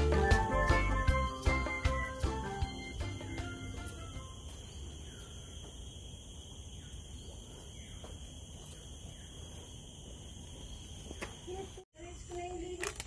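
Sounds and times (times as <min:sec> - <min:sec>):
background song music: 0:00.0 - 0:04.3.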